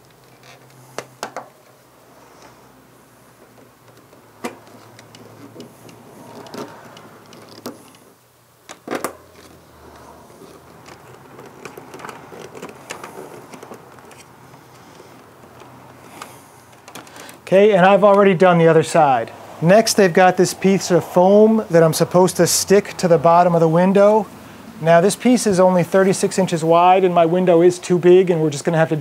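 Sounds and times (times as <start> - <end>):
scratchy rubbing and rattling: 9.2 - 17.4.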